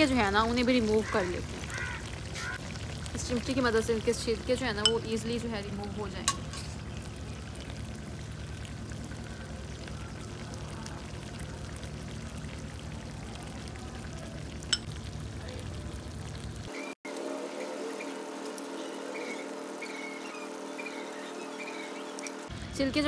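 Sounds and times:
food sizzling in oil: 0.0 - 10.7, 16.0 - 22.5
metal tongs clicking on pan: 6.2 - 6.7.

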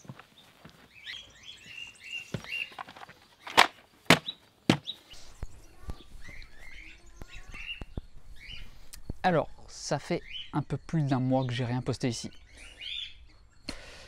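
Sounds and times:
steps on plastic mat: 0.0 - 5.1
birds chirping: 0.0 - 14.0.

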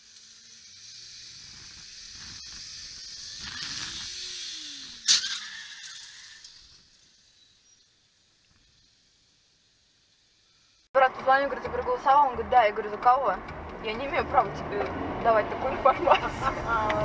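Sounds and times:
low vehicle tone: 10.3 - 17.0.

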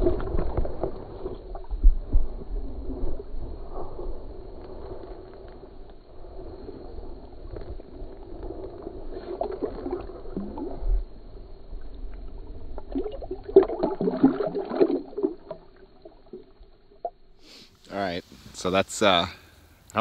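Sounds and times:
water sloshing and splashing: 0.0 - 3.4, 7.5 - 17.4.

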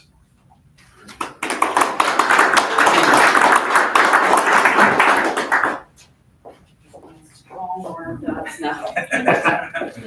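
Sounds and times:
audience applauding: 1.1 - 5.9.

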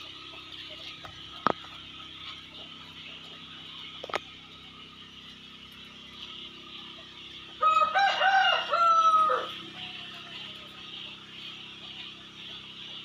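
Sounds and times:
rooster crowing: 7.6 - 10.1.

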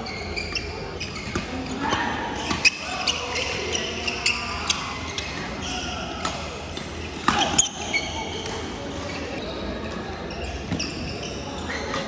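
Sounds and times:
sneakers squeaking on wooden floor: 0.0 - 6.0, 7.0 - 12.0
rackets hitting shuttlecock: 6.2 - 7.8.

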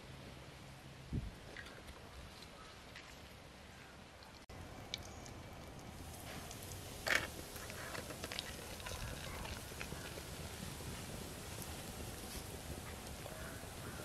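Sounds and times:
oil crackling and popping: 4.8 - 14.0
fish frying in hot oil: 5.9 - 14.0.

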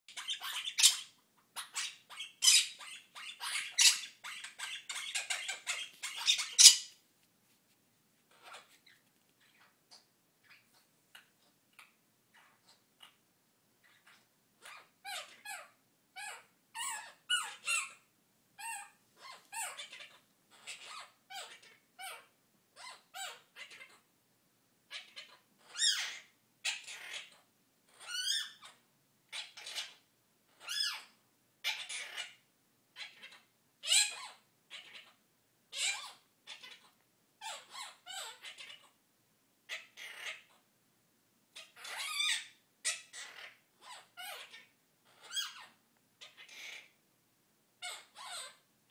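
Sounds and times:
parrot squeaky calls: 0.1 - 7.0, 8.3 - 13.2, 13.8 - 24.0, 24.9 - 32.4, 33.0 - 39.0, 39.7 - 40.6, 41.5 - 47.0, 47.8 - 48.6.

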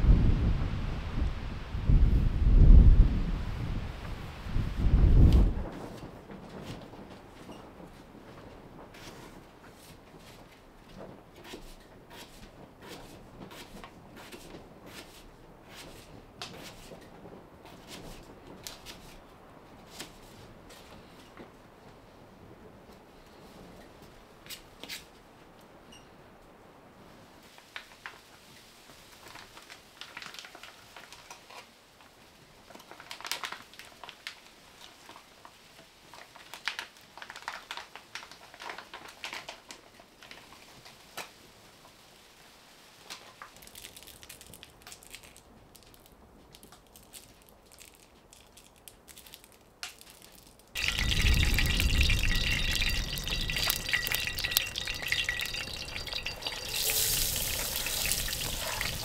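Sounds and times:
potatoes sizzling in hot oil: 50.8 - 59.0.

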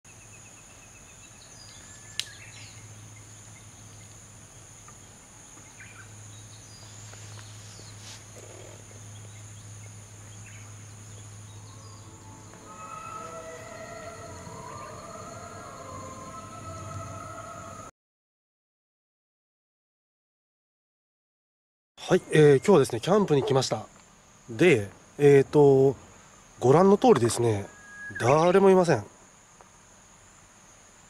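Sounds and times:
high-pitched insect buzz: 5.7 - 17.9, 27.3 - 28.7
short bird chirps: 27.7 - 28.4.

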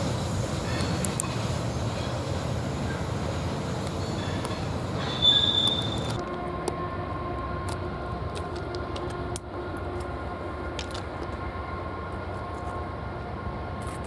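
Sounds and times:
distant locomotive rumble: 0.0 - 14.0.

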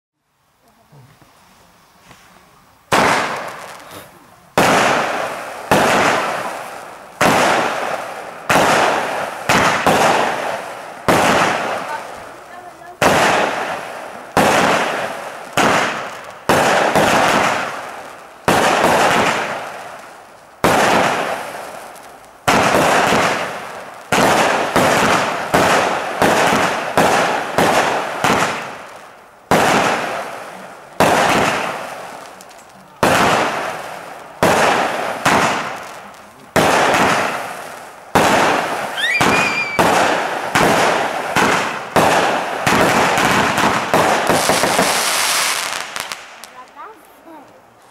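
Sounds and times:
firework bangs: 2.9 - 47.9
rising firework whistle: 38.4 - 40.2, 42.8 - 46.2.

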